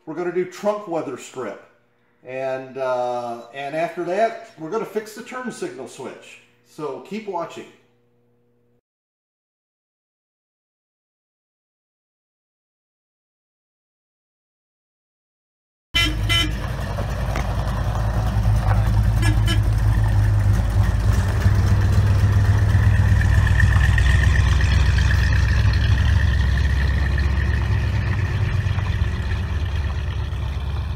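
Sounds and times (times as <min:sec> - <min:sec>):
car engine exhaust rumble: 0:16.0 - 0:30.9.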